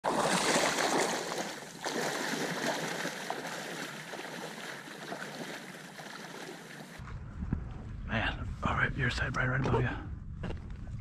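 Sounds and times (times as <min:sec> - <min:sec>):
water sloshing around wading legs: 0:00.0 - 0:07.0.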